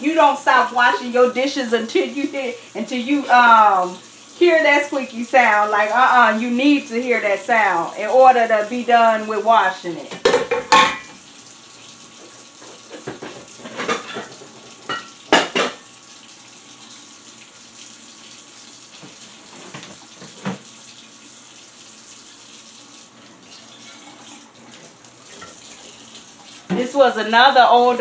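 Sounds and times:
faucet running into sink: 0.0 - 28.0
dishware clattering: 10.1 - 11.2, 13.0 - 15.8.

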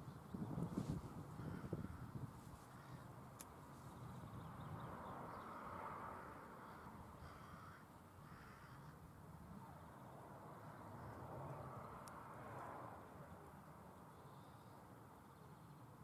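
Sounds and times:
crows cawing: 1.4 - 3.1, 6.1 - 9.0.

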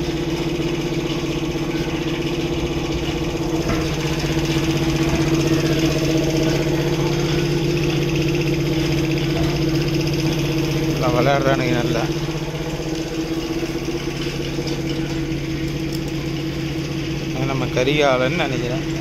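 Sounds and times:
motor droning: 0.0 - 19.0.

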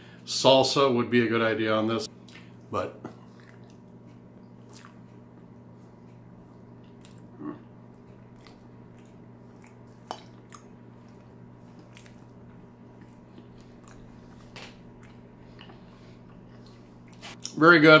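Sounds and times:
low room hum: 0.0 - 18.0
man chewing with mouth closed: 2.2 - 17.5
small mouth clicks: 3.3 - 5.1.

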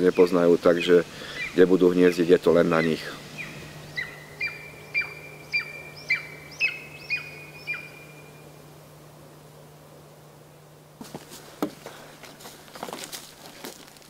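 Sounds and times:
eagle yelping: 0.1 - 8.4.

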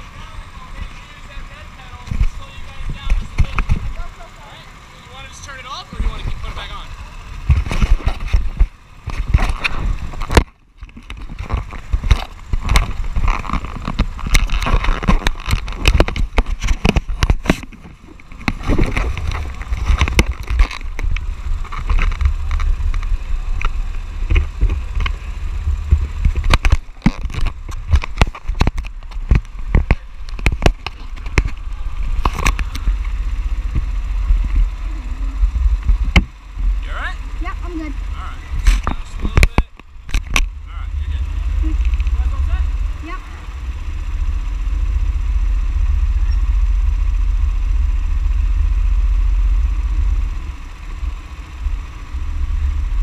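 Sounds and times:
heavy low rumble: 0.0 - 53.0
knocks and scraping on microphone: 2.1 - 4.0, 7.4 - 36.8, 38.5 - 42.8.

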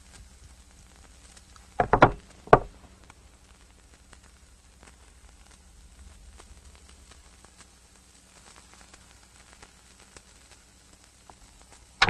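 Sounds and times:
faint crackling: 0.0 - 12.0
sharp knocks: 1.8 - 2.8.

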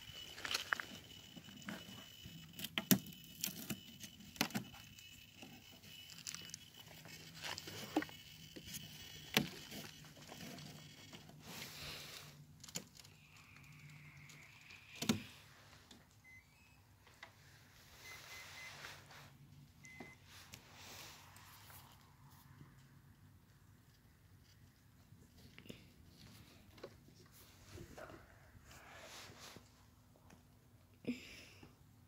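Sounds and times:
faint high whine: 0.0 - 23.1.

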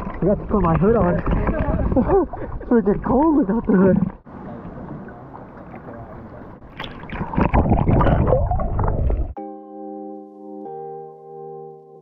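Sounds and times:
seawater sloshing: 0.0 - 9.3
underwater splashing and bubbling: 0.0 - 9.4.

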